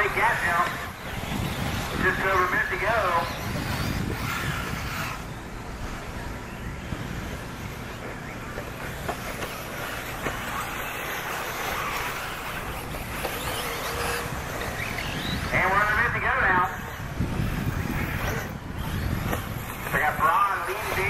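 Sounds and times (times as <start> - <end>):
toy car motor and tyres running: 0.0 - 21.0.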